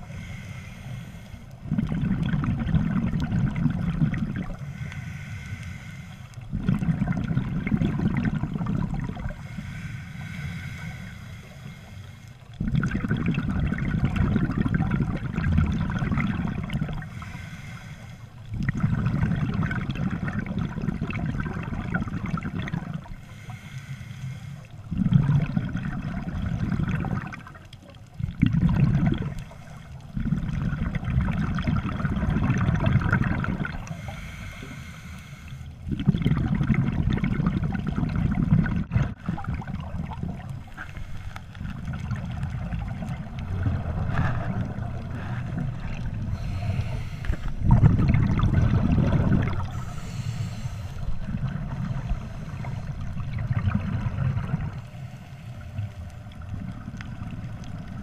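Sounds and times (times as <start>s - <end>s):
regulator inhale hiss: 0.0s - 1.7s, 4.6s - 6.5s, 9.3s - 12.6s, 17.0s - 18.5s, 23.1s - 24.9s, 29.3s - 30.0s, 33.8s - 35.8s, 40.7s - 41.7s, 44.1s - 47.7s, 49.6s - 53.3s, 54.7s - 56.3s
exhaled bubbles gurgling: 0.0s - 58.0s.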